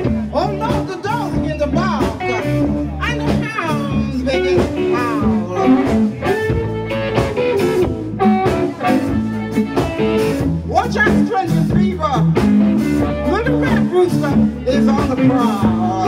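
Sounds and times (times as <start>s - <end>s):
live blues band: 0.0s - 16.0s
amplified harmonica bending notes: 2.2s - 10.6s.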